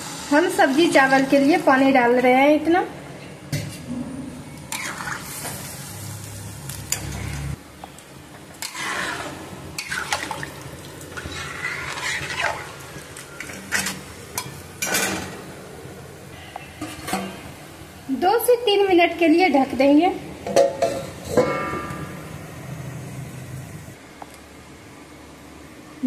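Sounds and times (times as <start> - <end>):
metal spatula scraping pan: 4.7 - 5.6, 8.6 - 10.4, 11.1 - 15.2
liquid sloshing in pan: 8.6 - 15.2.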